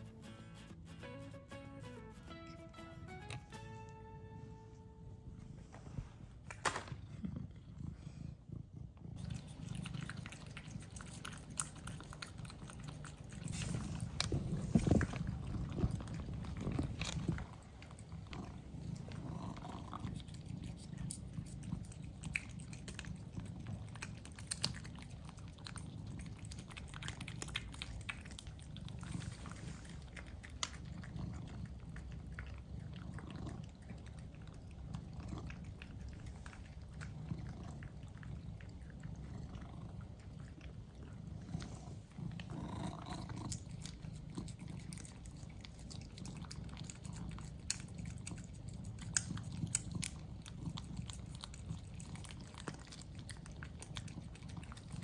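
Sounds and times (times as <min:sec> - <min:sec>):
cats licking: 0:07.0 - 0:55.0.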